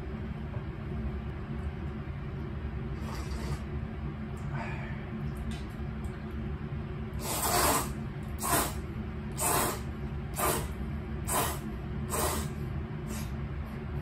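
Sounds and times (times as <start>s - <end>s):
ventilation fan humming: 0.0s - 14.0s
noodles being slurped: 7.2s - 8.8s.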